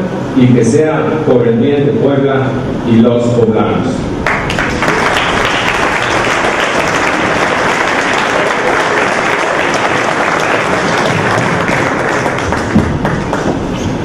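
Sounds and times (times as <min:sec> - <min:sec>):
audience applauding: 0:04.2 - 0:13.9.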